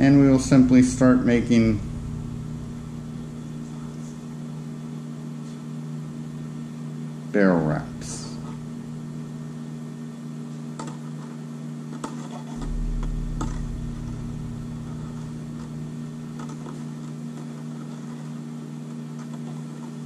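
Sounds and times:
brief low rumble: 0.0 - 4.8, 12.6 - 17.0
steady low hum: 0.0 - 10.3, 12.6 - 17.8.

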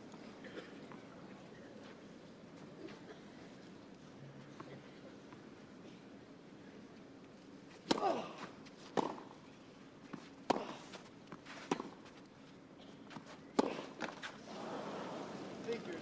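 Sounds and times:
racket hitting tennis ball: 7.8 - 9.4, 10.1 - 12.2, 13.1 - 14.3
stadium crowd noise: 14.4 - 16.0.

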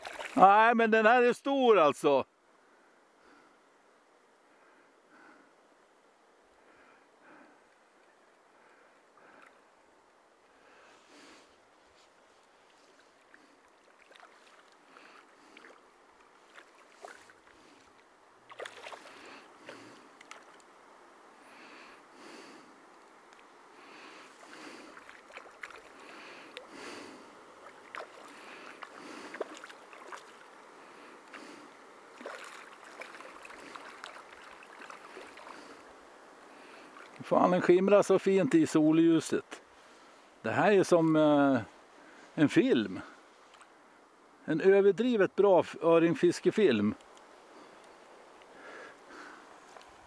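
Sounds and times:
small splashes and ticks: 0.0 - 0.4, 12.4 - 20.8, 24.3 - 26.8, 27.5 - 37.6, 43.4 - 43.8, 46.9 - 48.6, 49.6 - 50.0
river water flowing and lapping: 0.0 - 0.8, 2.3 - 50.0.

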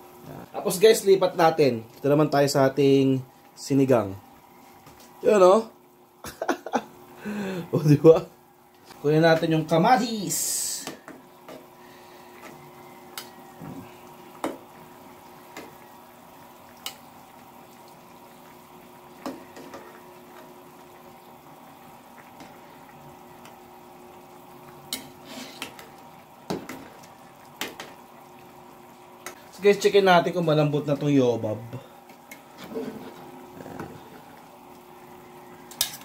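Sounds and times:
faint steady hum: 0.0 - 36.0
simmering broth: 0.0 - 36.0.

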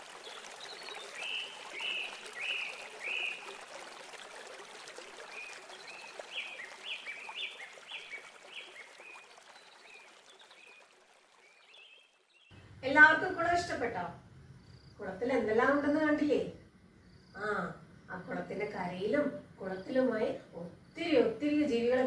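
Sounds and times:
water trickling: 0.0 - 13.8
bird calling: 1.1 - 3.5.

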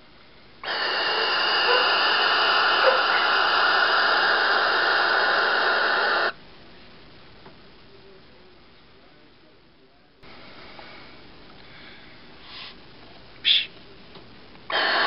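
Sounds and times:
owl hissing: 0.6 - 6.4, 13.4 - 13.8, 14.7 - 15.0.

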